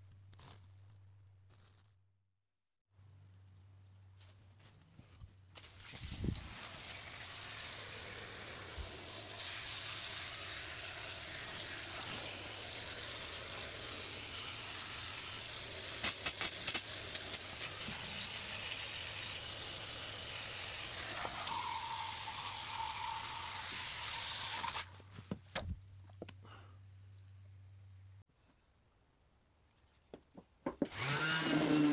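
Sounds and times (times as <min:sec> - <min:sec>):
aerosol spray can hissing: 0:08.8 - 0:24.7.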